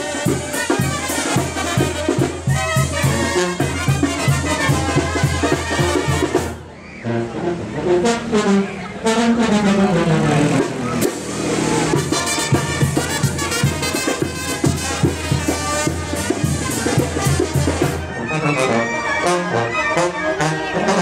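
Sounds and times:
steady drum beat: 0.0s - 6.6s, 10.6s - 18.1s
trumpets and trombones playing: 0.0s - 21.0s.

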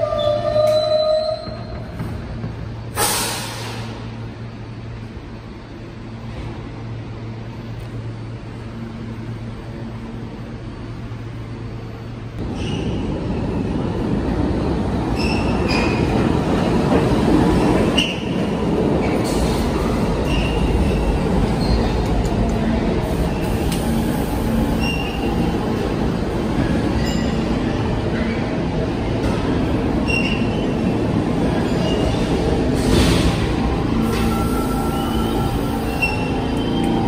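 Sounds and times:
train wheels rumbling on rails: 0.0s - 10.8s, 12.3s - 37.0s
standing train humming: 16.0s - 37.0s
high-pitched wheel squeals: 34.2s - 37.0s.

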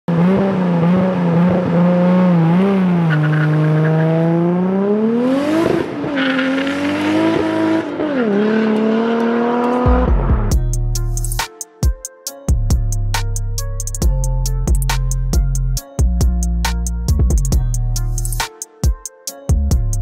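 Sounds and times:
car engine running hard: 0.1s - 10.5s
music with drum beat: 9.9s - 20.0s.

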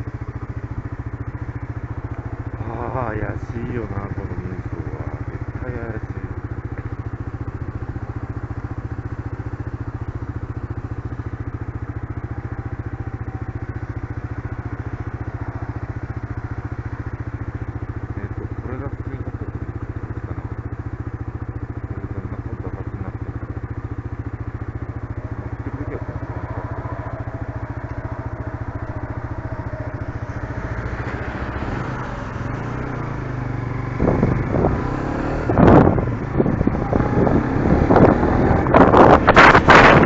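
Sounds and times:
motorcycle engine idling and revving: 0.0s - 40.0s
wind buffeting microphone: 33.8s - 40.0s.

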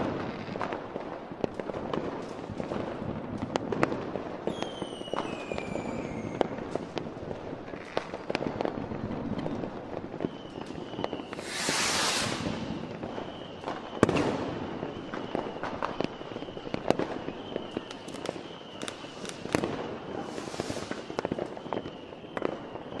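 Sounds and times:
fireworks popping and banging: 0.0s - 23.0s
firework hissing rush: 11.2s - 13.5s, 19.0s - 21.6s.

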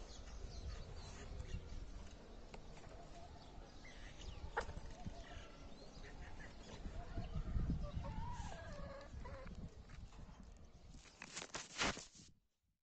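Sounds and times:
chickens clucking: 2.6s - 9.7s.

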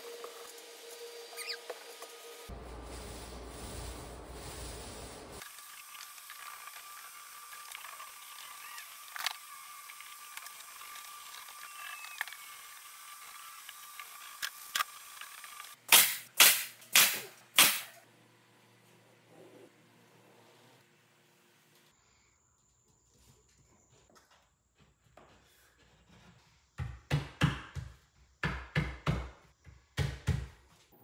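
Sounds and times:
nail gun firing: 15.9s - 18.0s.

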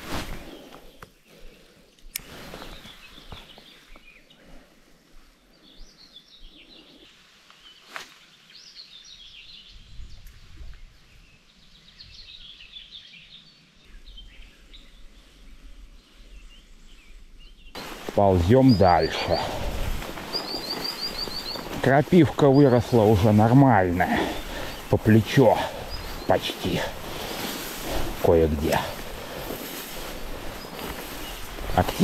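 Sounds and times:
songbirds chirping: 0.0s - 32.0s
riverside ambience: 17.8s - 32.0s.

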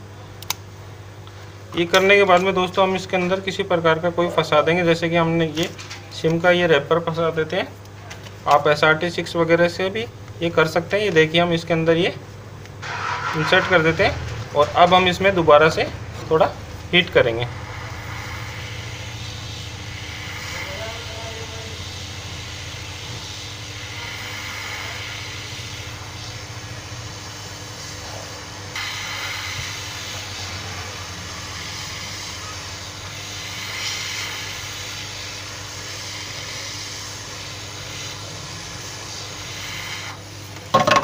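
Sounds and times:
low fan hum: 0.0s - 41.0s
hot air gun blowing: 12.8s - 41.0s.

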